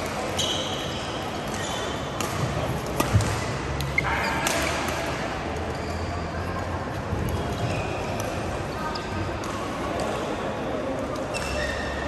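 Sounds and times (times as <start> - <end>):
shoes squeaking on court: 0.3 - 2.1, 5.7 - 6.3, 11.3 - 12.0
racket hitting shuttlecock: 2.2 - 5.2.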